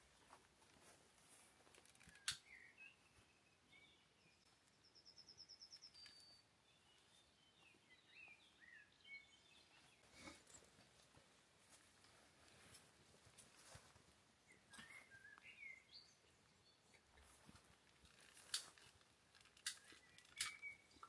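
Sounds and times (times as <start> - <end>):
faint birds chirping: 0.0 - 21.0
bird trill: 19.8 - 21.0.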